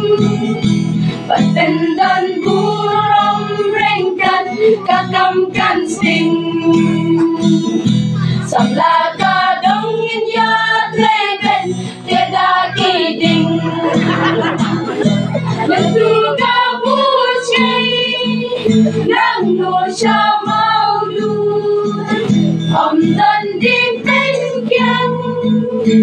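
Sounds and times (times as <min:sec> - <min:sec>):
choir of mostly female voices: 0:00.0 - 0:00.6, 0:01.3 - 0:26.0
strummed acoustic guitar: 0:00.0 - 0:26.0.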